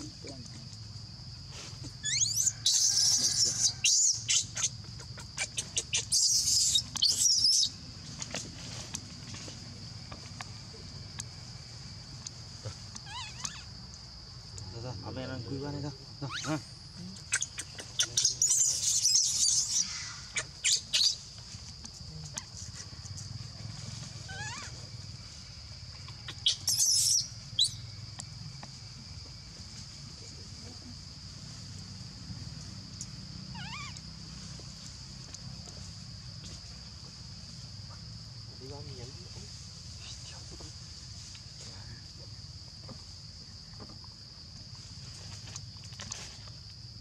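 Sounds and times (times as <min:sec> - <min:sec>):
baby monkey crying: 0:02.0 - 0:07.7, 0:13.0 - 0:13.7, 0:17.3 - 0:21.2, 0:24.3 - 0:24.8, 0:26.1 - 0:27.7, 0:33.5 - 0:34.0.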